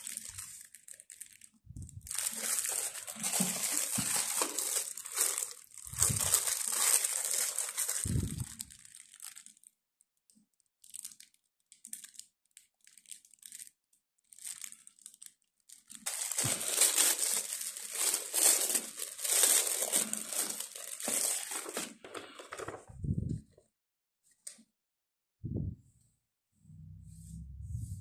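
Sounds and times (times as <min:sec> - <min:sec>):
plastic wrap crinkling and tearing: 0:00.0 - 0:09.8, 0:10.8 - 0:22.9.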